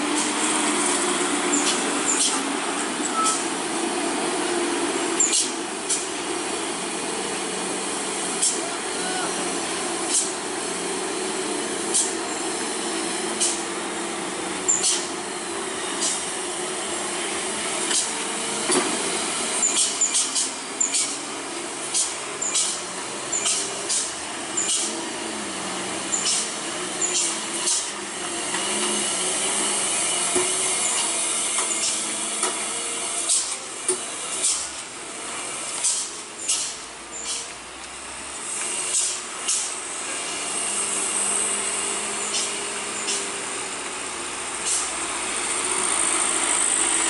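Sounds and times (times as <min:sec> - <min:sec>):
heavy trucks diesel engines under load: 0:00.0 - 0:47.0
air-brake hisses: 0:08.3 - 0:09.2, 0:10.0 - 0:10.4, 0:11.8 - 0:12.2, 0:13.0 - 0:13.7, 0:14.7 - 0:15.2, 0:15.8 - 0:16.3, 0:17.8 - 0:18.2, 0:19.6 - 0:21.2, 0:21.8 - 0:25.0, 0:26.1 - 0:37.6, 0:38.4 - 0:47.0.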